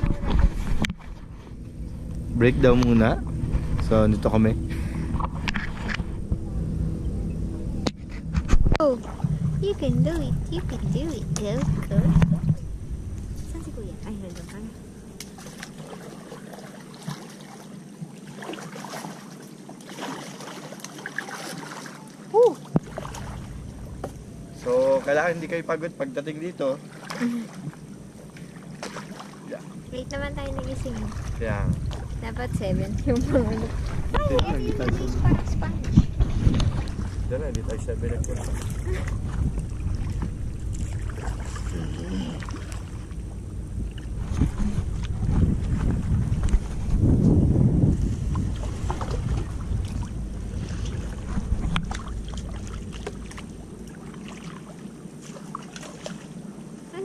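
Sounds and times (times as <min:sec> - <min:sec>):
wind rumbling on microphone: 0:00.0 - 0:15.9, 0:29.8 - 0:54.1
paddle splashing in water: 0:15.2 - 0:24.0, 0:26.8 - 0:29.6, 0:33.4 - 0:34.4, 0:35.9 - 0:37.2, 0:38.2 - 0:43.2, 0:48.0 - 0:56.4.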